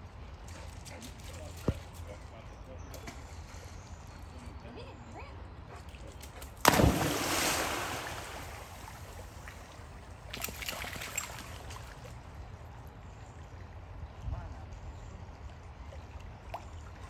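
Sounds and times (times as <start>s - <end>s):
dog swimming and splashing: 6.6s - 9.3s
dog splashing into water: 6.6s - 9.4s, 10.3s - 12.0s.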